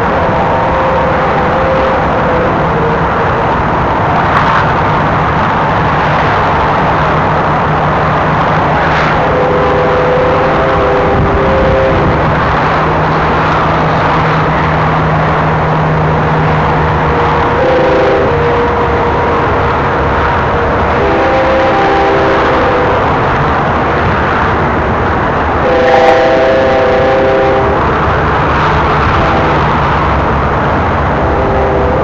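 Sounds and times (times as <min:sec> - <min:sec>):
train wheels rumbling on rail: 0:00.0 - 0:32.0.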